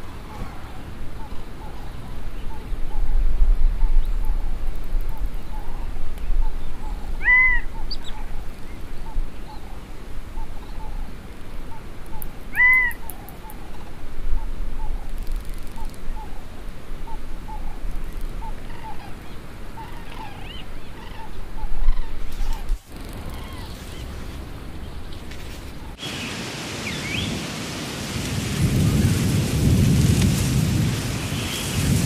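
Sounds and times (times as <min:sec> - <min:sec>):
clear arched bird calls: 0:03.8 - 0:11.1, 0:11.7 - 0:16.4, 0:17.0 - 0:27.4.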